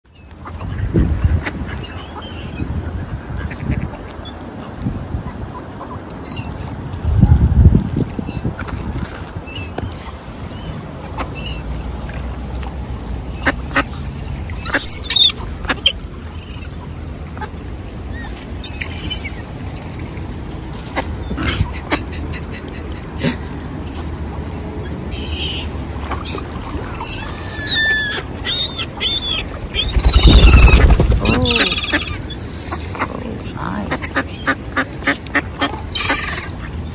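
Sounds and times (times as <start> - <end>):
low wind rumble: 0.2 - 11.0, 28.2 - 33.8
birds chirping: 24.8 - 36.9.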